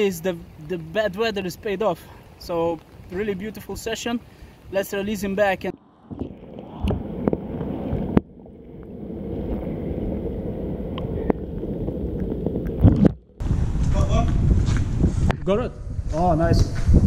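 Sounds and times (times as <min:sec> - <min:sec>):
muffled underwater rumble and sloshing: 0:05.7 - 0:13.4.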